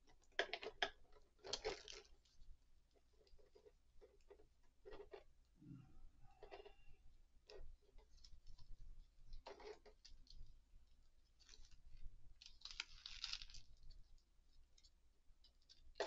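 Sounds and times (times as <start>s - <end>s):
plastic packaging rustling: 11.4s - 14.0s.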